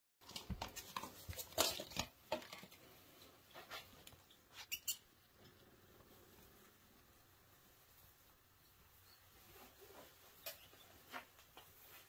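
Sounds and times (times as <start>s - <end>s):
mice scurrying in bedding: 0.2s - 12.0s.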